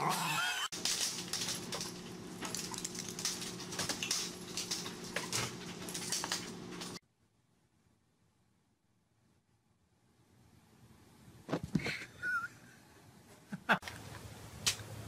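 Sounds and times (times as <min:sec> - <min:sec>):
wire gate clattering onto tiles: 0:00.7 - 0:07.0.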